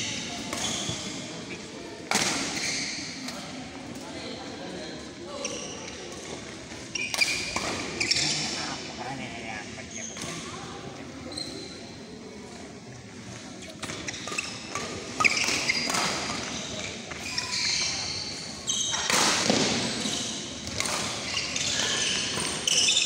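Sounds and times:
rackets hitting shuttlecock: 2.1 - 3.4.

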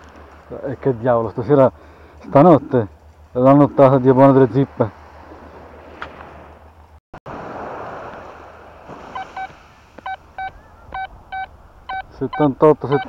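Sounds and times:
metal detector beeps: 9.2 - 13.0.

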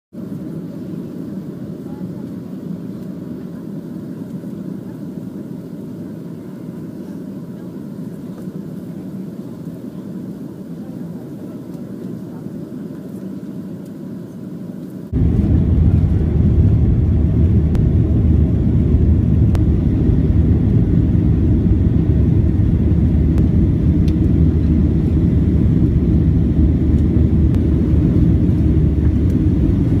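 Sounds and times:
jet engine drone: 0.2 - 30.0
rushing air: 15.1 - 30.0.

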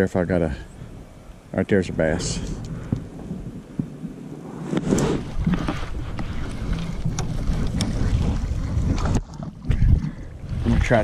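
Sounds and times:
wind rumbling on microphone: 0.5 - 11.0
knocks and handling noise on kayak: 2.5 - 10.6.

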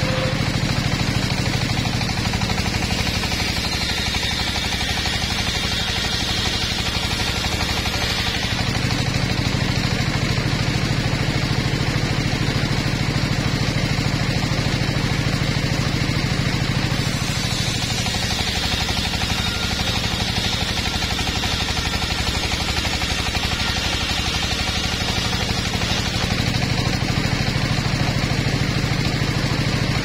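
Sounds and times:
circular saw ripping logs: 16.9 - 27.0.

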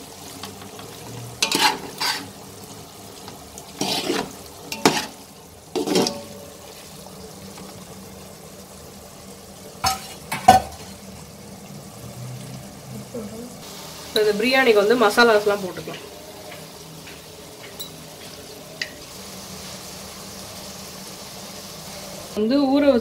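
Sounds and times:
faint frying sizzle: 0.0 - 23.0
spoon scraping metal pot: 1.4 - 2.3, 3.8 - 5.2, 5.8 - 6.3.

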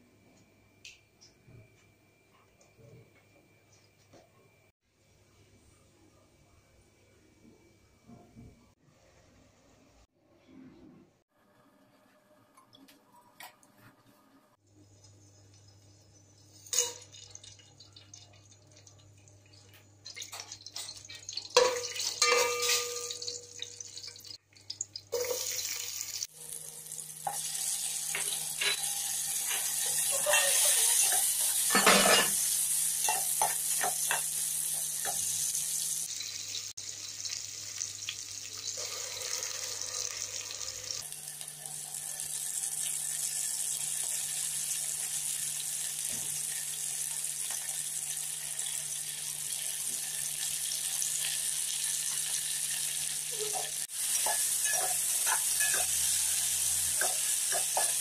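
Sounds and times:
onions sizzling in hot oil: 20.0 - 58.0
ladle scraping pot: 29.5 - 32.4.

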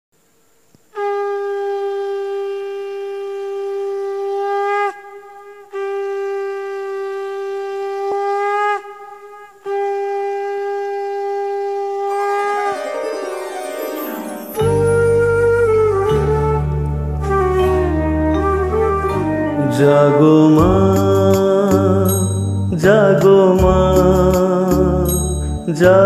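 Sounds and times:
conch shell blasts: 1.0 - 13.0
instrumental music: 1.0 - 26.0.

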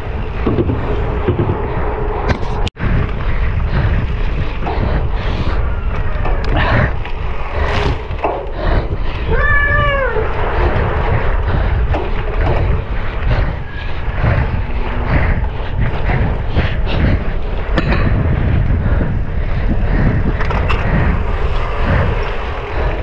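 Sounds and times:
bike rattling over rough ground: 0.0 - 23.0
wind on microphone: 0.0 - 23.0.

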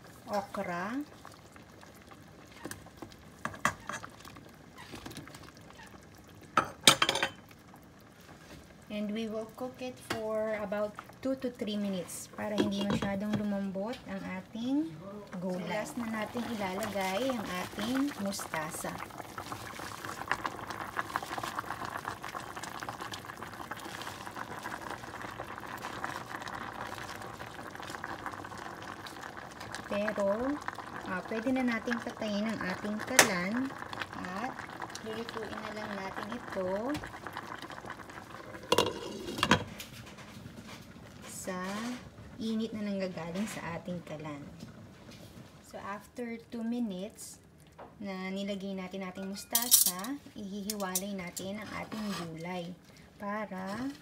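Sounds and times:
broth boiling in a pot: 0.0 - 54.0
okra dropping into a pot: 38.7 - 39.8.

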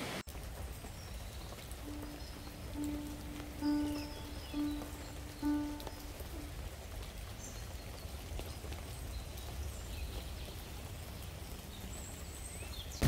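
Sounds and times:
light rain falling: 0.0 - 13.0
faint bird chirps: 1.0 - 6.6.

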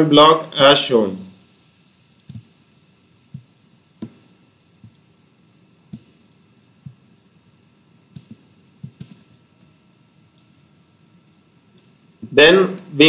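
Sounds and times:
faint steady hiss: 0.0 - 13.0
computer mouse clicking: 2.2 - 2.5, 8.1 - 9.3.

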